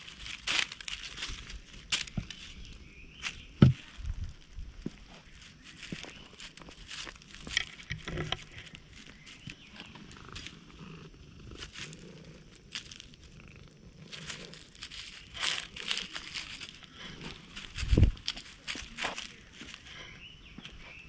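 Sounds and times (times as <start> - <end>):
dry leaves crackling: 0.0 - 21.0
cat purring: 7.7 - 19.0.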